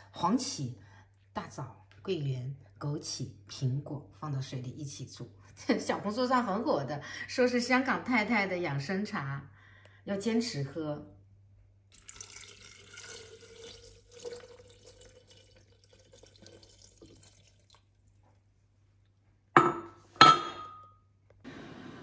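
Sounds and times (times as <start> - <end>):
water pouring into kettle: 11.9 - 18.2.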